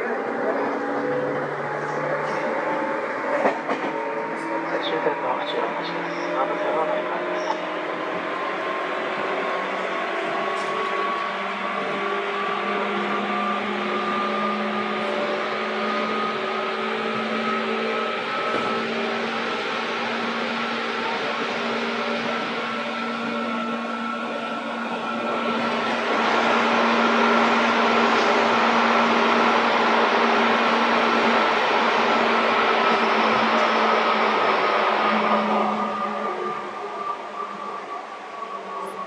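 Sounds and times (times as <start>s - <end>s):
wheels rumbling on rails: 0.0s - 39.0s
electric train motor hum: 7.8s - 38.2s.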